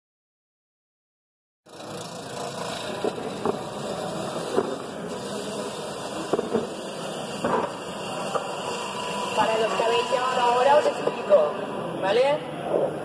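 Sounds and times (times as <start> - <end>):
wood lathe cutting: 5.2 - 11.5.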